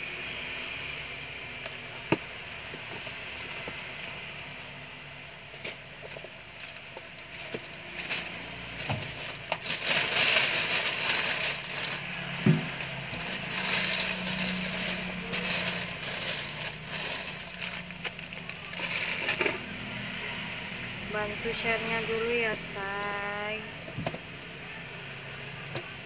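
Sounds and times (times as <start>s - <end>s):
packaging crinkling: 6.0s - 19.5s.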